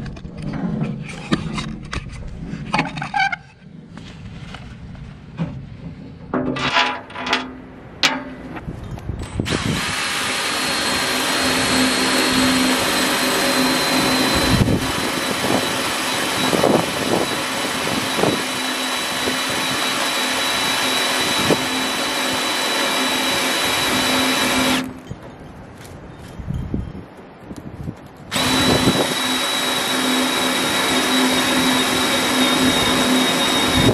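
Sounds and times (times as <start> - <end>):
power drill drilling through steel: 9.4 - 24.9, 28.3 - 33.9.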